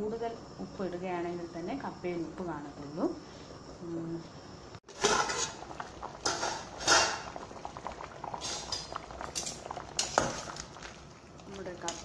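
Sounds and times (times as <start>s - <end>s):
pot of water boiling: 4.8s - 12.0s.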